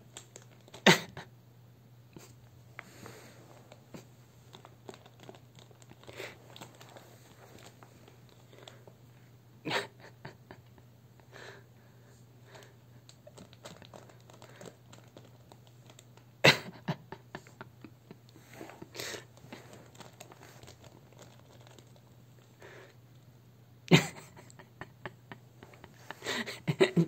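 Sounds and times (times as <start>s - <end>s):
plastic bag crinkling: 0.0s - 0.8s, 3.0s - 8.9s, 13.1s - 16.2s, 18.5s - 22.6s.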